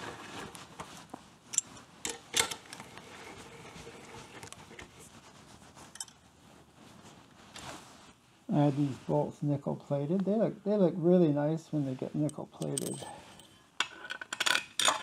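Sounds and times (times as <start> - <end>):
light metal rattle: 12.3 - 13.6.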